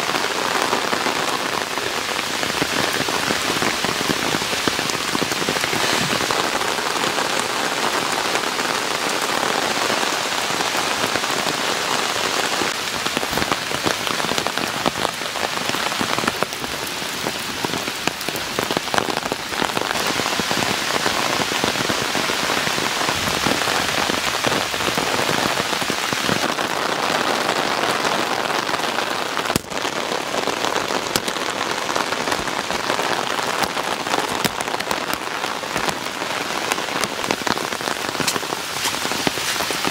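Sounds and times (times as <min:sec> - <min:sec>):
heavy rain hissing: 0:00.0 - 0:39.9
raindrops ticking: 0:29.3 - 0:39.9.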